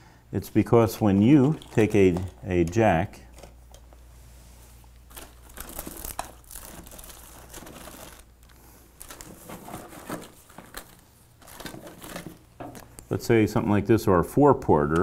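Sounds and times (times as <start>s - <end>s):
wires rustling and crinkling: 0.6s - 13.2s.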